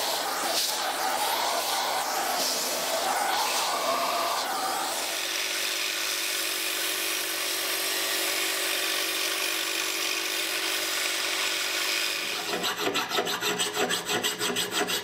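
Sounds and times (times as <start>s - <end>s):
belt sander grinding metal: 7.9s - 15.0s.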